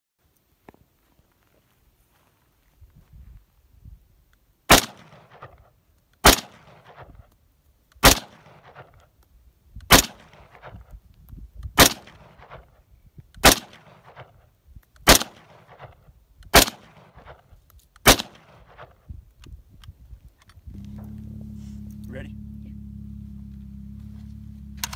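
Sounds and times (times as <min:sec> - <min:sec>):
rifle shots with echo: 0:04.7 - 0:07.2, 0:08.0 - 0:09.0, 0:09.9 - 0:10.8, 0:11.8 - 0:12.8, 0:13.4 - 0:14.4, 0:15.0 - 0:19.0.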